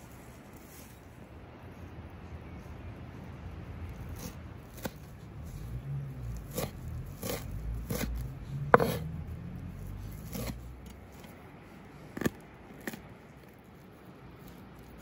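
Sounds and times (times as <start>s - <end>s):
knife chopping on wooden board: 6.5s - 9.1s.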